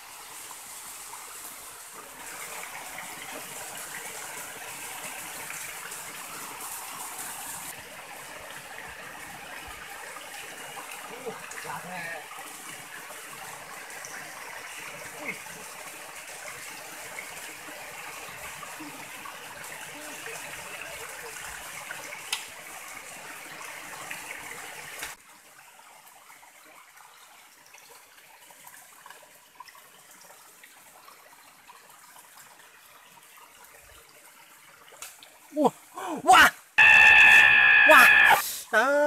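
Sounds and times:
stream rushing over stones: 0.0s - 26.9s.

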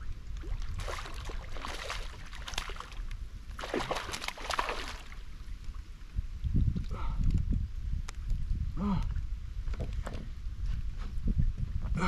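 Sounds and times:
fish splashing in water: 0.4s - 3.0s, 3.6s - 5.2s.

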